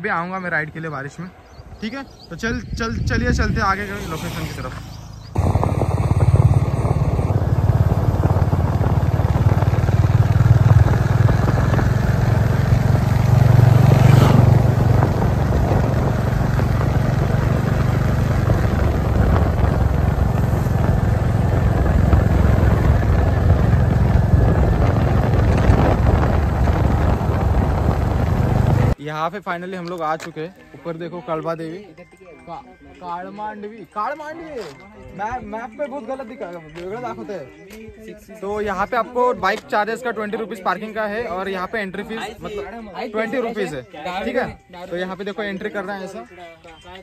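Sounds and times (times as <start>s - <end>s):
road and air noise: 0.0s - 29.0s
motorcycle engine droning: 1.5s - 29.0s.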